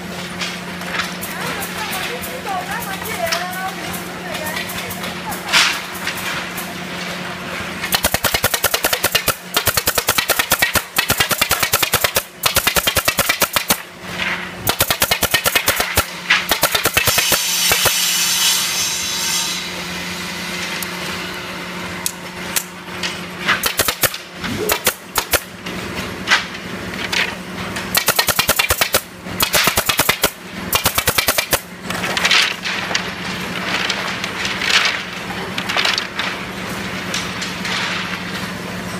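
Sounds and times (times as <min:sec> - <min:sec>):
machine hum: 0:00.0 - 0:38.9
pneumatic nail gun firing: 0:07.9 - 0:13.9, 0:14.6 - 0:18.6, 0:23.5 - 0:25.5, 0:27.9 - 0:31.7.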